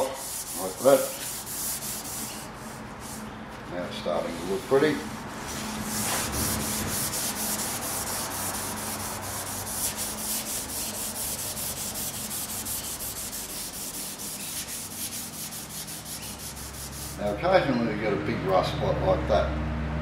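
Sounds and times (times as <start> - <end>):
scouring pad scrubbing metal: 3.9 - 17.4.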